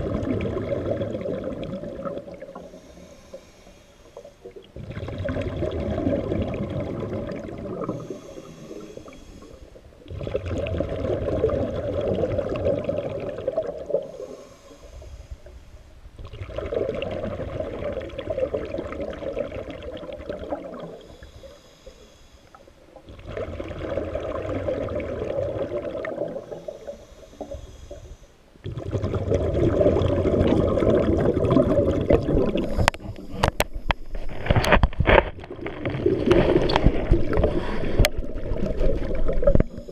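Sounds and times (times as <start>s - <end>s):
bubbling exhaled air underwater: 0.0s - 3.5s, 4.1s - 15.1s, 16.2s - 21.9s, 22.9s - 39.9s
hissing inhale through regulator: 2.4s - 4.8s, 7.8s - 10.0s, 13.9s - 15.9s, 20.7s - 22.9s, 26.2s - 28.5s, 32.5s - 34.3s, 36.5s - 38.2s, 39.3s - 39.9s.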